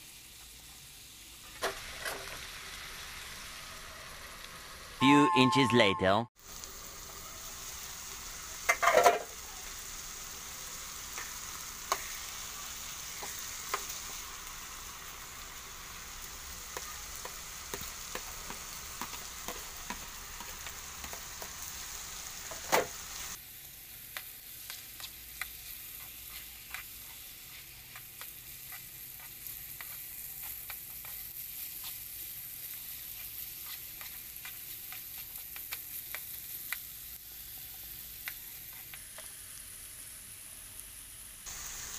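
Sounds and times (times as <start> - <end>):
meat sizzling in a frying pan: 0.0 - 5.0, 6.4 - 41.9
spatula scraping a pan: 24.7 - 36.2.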